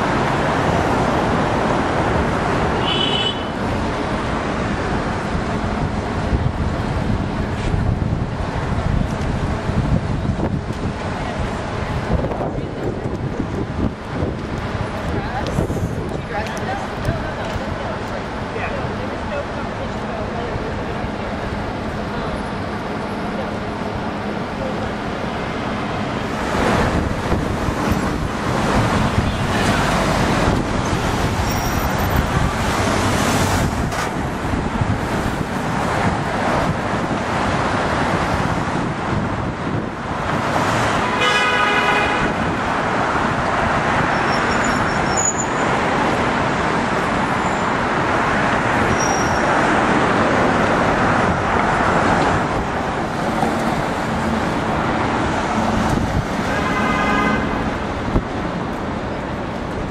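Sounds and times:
city street traffic: 0:00.0 - 0:59.9
vehicle horn tooting: 0:02.8 - 0:03.6, 0:41.0 - 0:42.3, 0:56.5 - 0:57.6.

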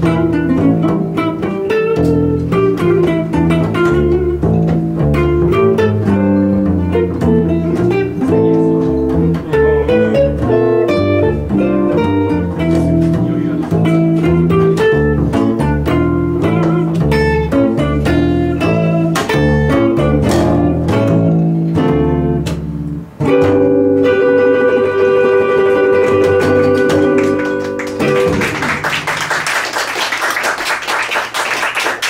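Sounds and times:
upright double bass: 0:00.0 - 0:29.5
electric guitar jazz line: 0:00.0 - 0:30.3
audience applause: 0:26.5 - 0:32.0.

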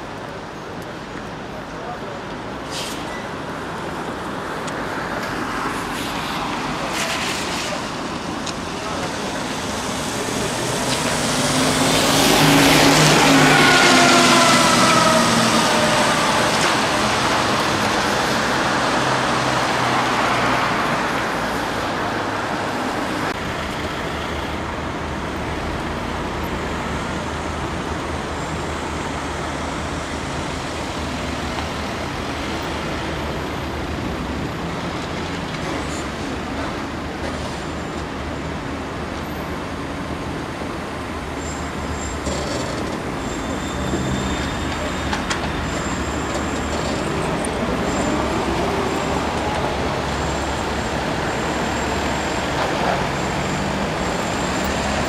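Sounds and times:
street traffic noise: 0:00.0 - 0:55.0
trolleybus electric whine passing: 0:08.0 - 0:35.5, 0:36.2 - 0:55.0.

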